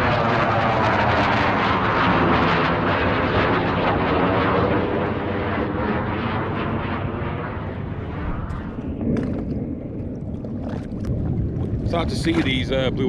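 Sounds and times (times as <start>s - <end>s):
jet engine roar: 0.0s - 13.0s
small water splashes: 9.0s - 12.9s.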